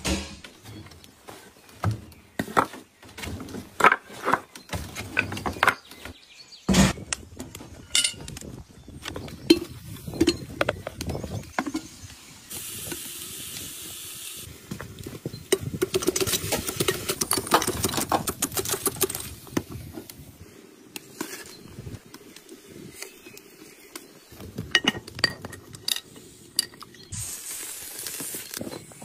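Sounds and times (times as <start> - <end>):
pot and utensils clattering: 7.9 - 8.3, 24.6 - 26.9
crackling sizzle: 8.3 - 17.4, 19.2 - 29.0
steady hiss: 11.6 - 14.7, 25.9 - 29.0.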